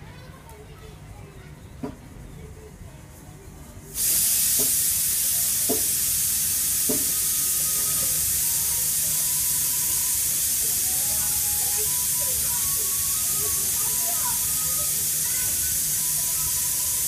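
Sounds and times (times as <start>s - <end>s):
loud static hiss: 4.0s - 17.0s.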